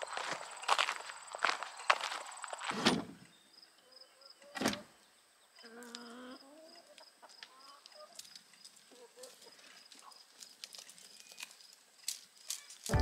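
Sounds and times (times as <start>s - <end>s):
footsteps on gravel: 0.0s - 2.8s, 8.1s - 13.0s
hens clucking: 5.6s - 8.3s.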